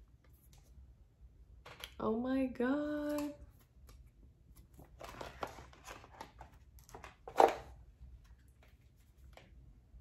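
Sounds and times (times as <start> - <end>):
packaging rustling: 4.6 - 7.7.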